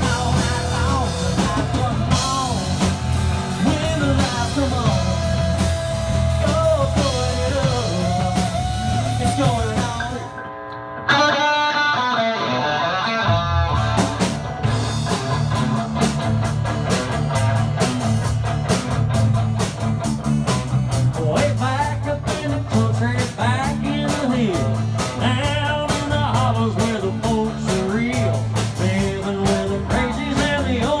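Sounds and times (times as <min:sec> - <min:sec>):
bass and drums: 0:00.0 - 0:10.5, 0:11.1 - 0:31.0
person singing: 0:00.0 - 0:10.5, 0:21.1 - 0:31.0
electric guitar: 0:00.0 - 0:31.0.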